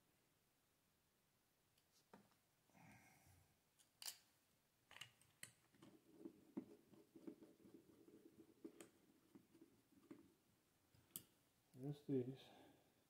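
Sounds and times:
small parts clicking: 3.8 - 4.3.

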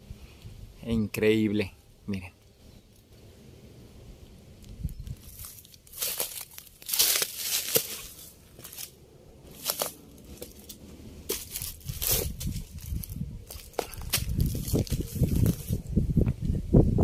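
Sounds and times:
footsteps crunching dry leaves: 5.1 - 15.9.

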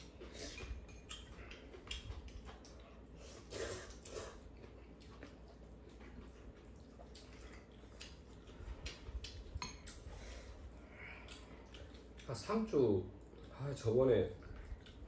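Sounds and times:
chopsticks clicking against bowls: 0.5 - 2.8.

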